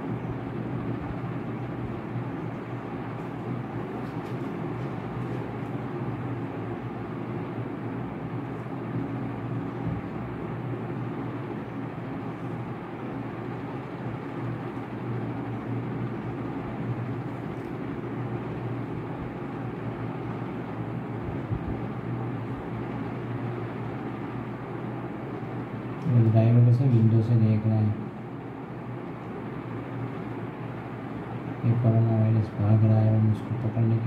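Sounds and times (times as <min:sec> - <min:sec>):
steady background hum and rumble: 0:00.0 - 0:34.0.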